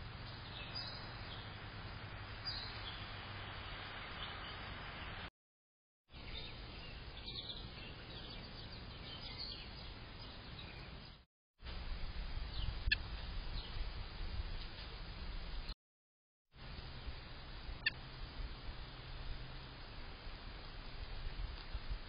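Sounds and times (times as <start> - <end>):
outdoor background noise: 0.0 - 5.3, 6.1 - 15.8, 16.5 - 22.0
faint bird chirps: 17.8 - 18.0.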